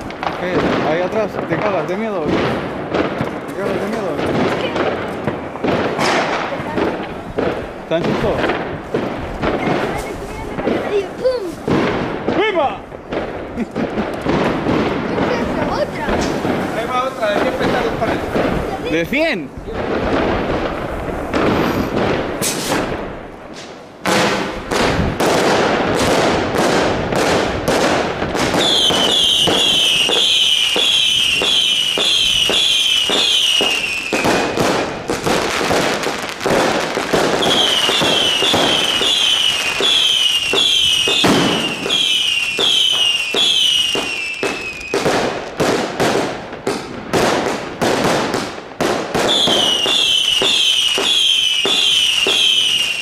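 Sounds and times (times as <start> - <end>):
fireworks bangs and crackles: 0.0 - 53.0
falling firework whistles: 21.3 - 22.9, 28.5 - 34.7, 37.3 - 45.1, 49.2 - 53.0.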